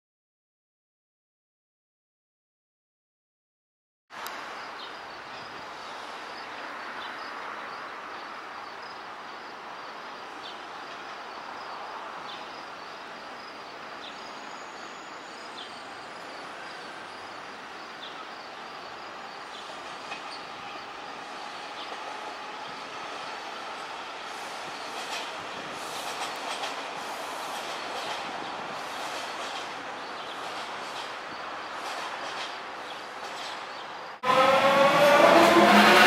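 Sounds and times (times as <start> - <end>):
train wheels rumbling on rails: 19.1 - 36.0.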